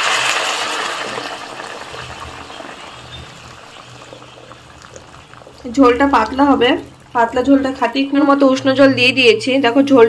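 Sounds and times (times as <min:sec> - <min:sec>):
water hissing in hot wok: 0:00.0 - 0:07.9
water pouring: 0:00.0 - 0:08.6.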